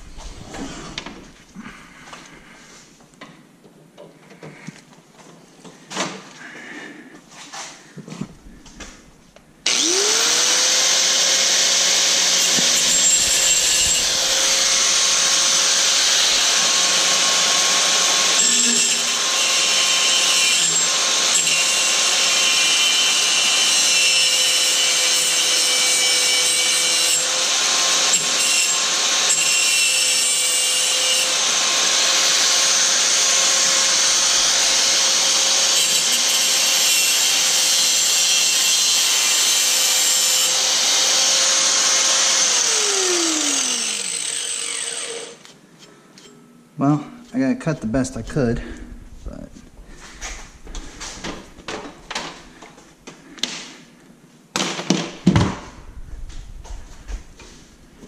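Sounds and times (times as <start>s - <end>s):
power tool cutting: 9.6s - 45.5s
motor winding down: 9.7s - 11.6s, 41.7s - 44.4s.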